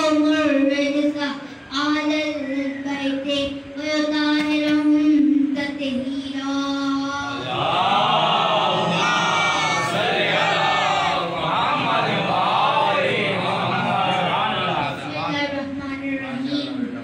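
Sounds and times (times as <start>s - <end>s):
boy chanting into a microphone: 0.0s - 17.0s
group of voices chanting: 7.4s - 14.9s.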